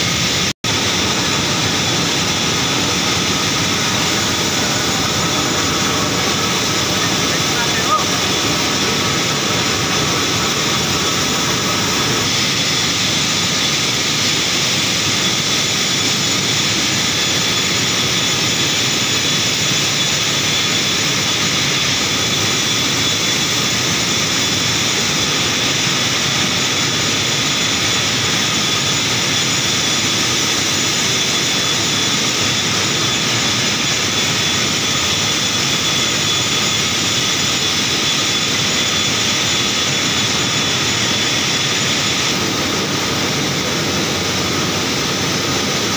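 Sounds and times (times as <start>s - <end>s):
faint high whine: 0.0s - 45.9s.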